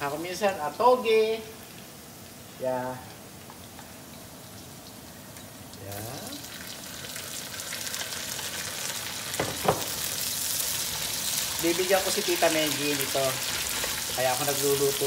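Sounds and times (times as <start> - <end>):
food sizzling in hot oil: 0.0 - 15.0
sharp knocks: 9.4 - 9.9.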